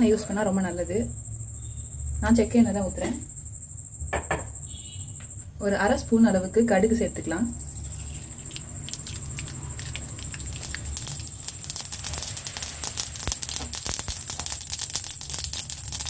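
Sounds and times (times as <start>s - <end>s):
seeds sizzling and popping in oil: 7.7s - 16.0s.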